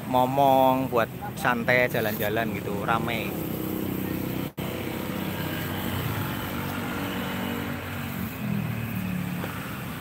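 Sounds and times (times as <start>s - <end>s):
car engines passing: 0.0s - 10.0s
engine note rising: 2.4s - 10.0s.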